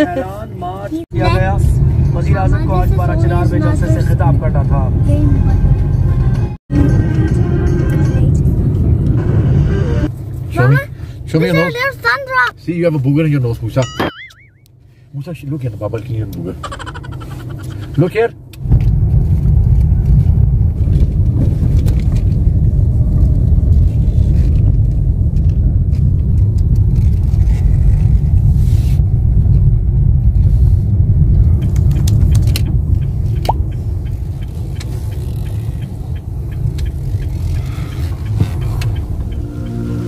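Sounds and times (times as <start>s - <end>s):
car cabin rumble: 15.6s - 40.0s.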